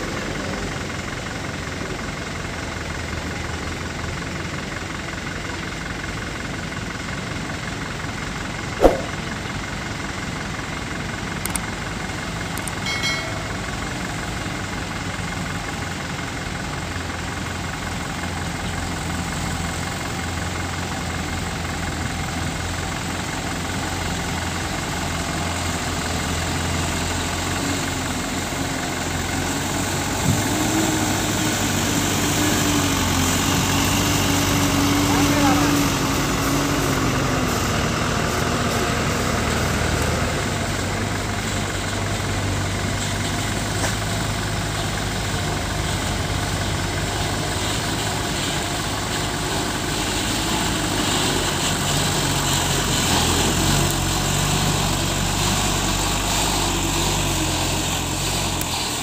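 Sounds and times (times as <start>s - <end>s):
diesel truck engines running: 0.0s - 59.0s
sharp knock: 8.8s - 9.2s.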